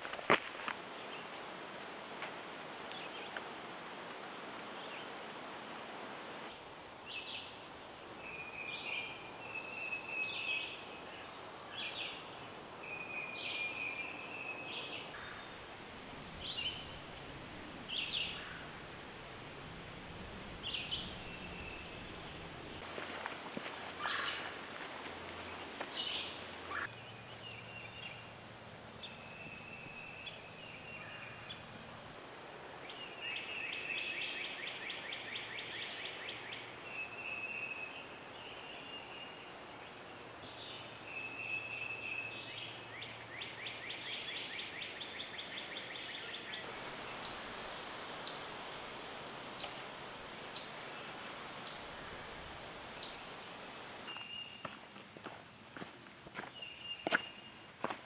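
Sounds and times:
songbirds singing: 0:06.5 - 0:58.0.

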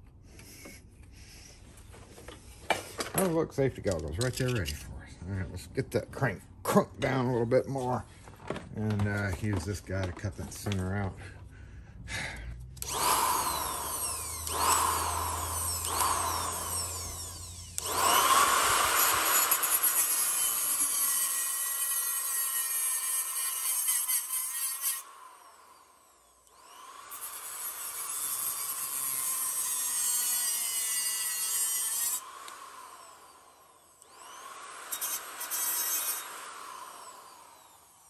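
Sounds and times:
angle grinder cutting metal: 0:12.8 - 0:38.0.

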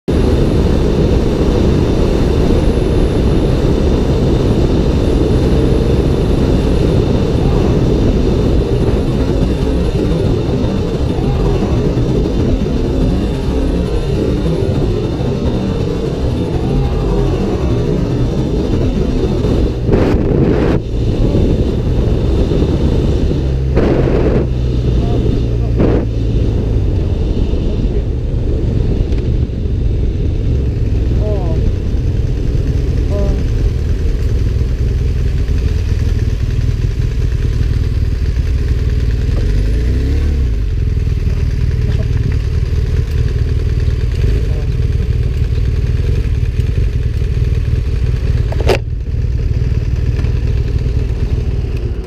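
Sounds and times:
motorcycle engine running: 0:00.0 - 0:52.0
wind rushing on microphone: 0:00.1 - 0:37.7.

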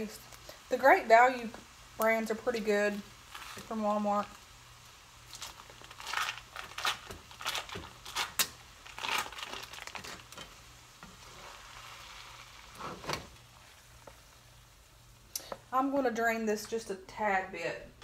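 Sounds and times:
foil wrapper crinkling: 0:05.2 - 0:10.4.

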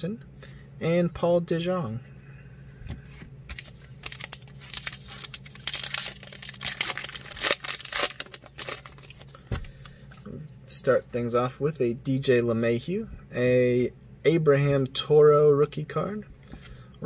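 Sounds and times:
wrapper tearing and crinkling: 0:03.5 - 0:09.4.

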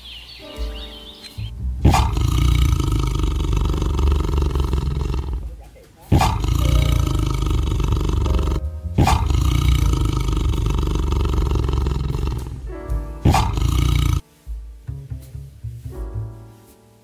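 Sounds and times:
tiger roaring: 0:01.8 - 0:14.2.

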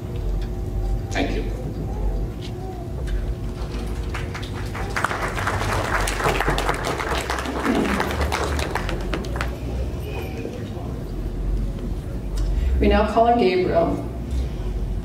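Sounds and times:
guests applauding: 0:03.6 - 0:10.6.

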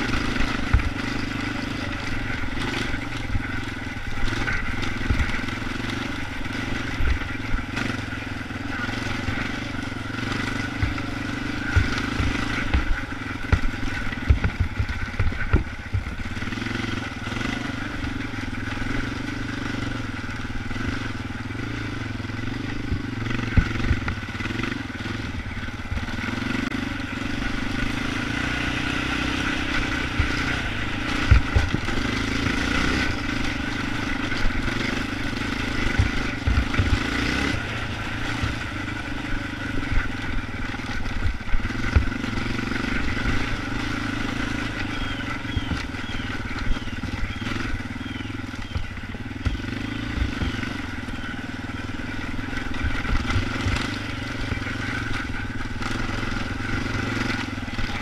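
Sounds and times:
atv engine revving: 0:00.0 - 0:58.0
knocks and thumps: 0:13.5 - 0:16.2.

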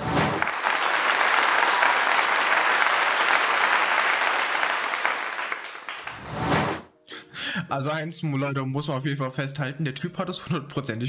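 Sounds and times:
audience applause: 0:00.0 - 0:06.4.

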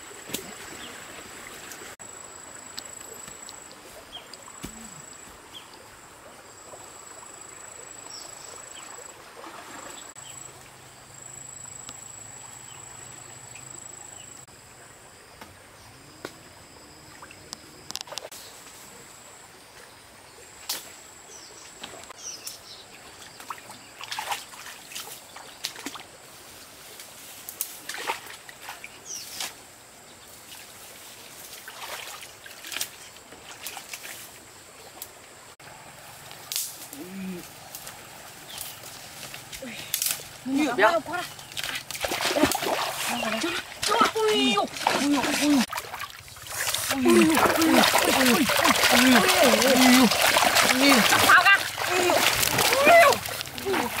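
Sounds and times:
running water: 0:00.0 - 0:11.9, 0:37.4 - 0:54.0
feet wading through water: 0:08.8 - 0:10.2, 0:23.0 - 0:26.1, 0:31.4 - 0:34.2, 0:37.6 - 0:54.0.

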